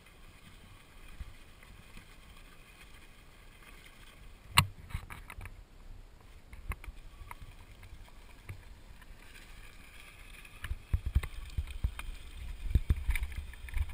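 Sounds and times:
wind rumbling on microphone: 0:10.5 - 0:13.9.

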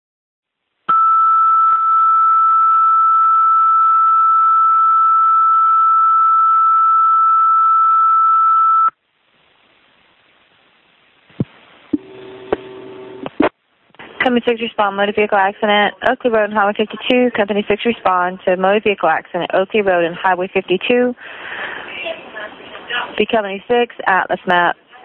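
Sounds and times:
faint radio hiss: 0:08.9 - 0:25.0.

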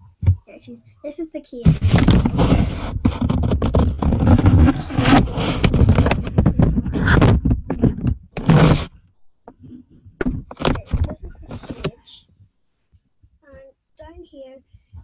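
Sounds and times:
microphone handling noise: 0:01.6 - 0:12.0.

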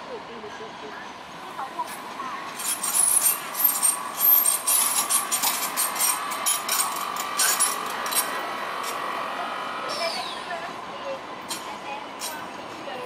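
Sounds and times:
steady tram whine: 0:00.0 - 0:13.0
tram wheels clicking on rails: 0:01.2 - 0:13.0.

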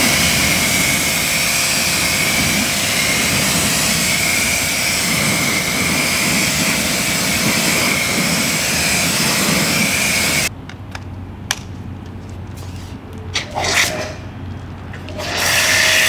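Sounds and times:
water spray hissing: 0:00.0 - 0:10.5, 0:15.1 - 0:16.0.

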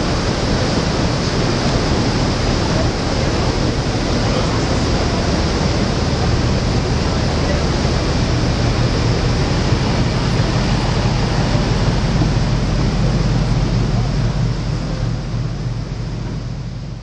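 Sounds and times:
boat engine drone: 0:00.0 - 0:17.0
water rushing along hull: 0:00.0 - 0:17.0.

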